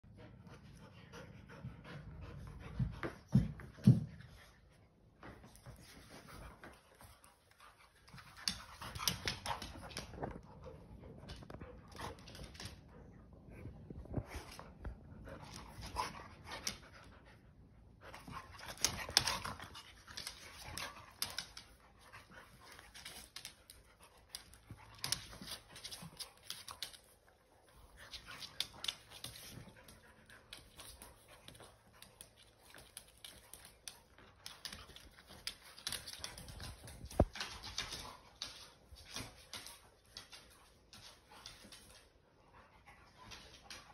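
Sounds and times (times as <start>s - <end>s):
dogs panting: 0.1s - 3.6s
dogs scuffling: 5.2s - 13.0s, 18.1s - 42.2s
claws clicking on hardwood floor: 5.5s - 12.8s, 18.2s - 42.0s.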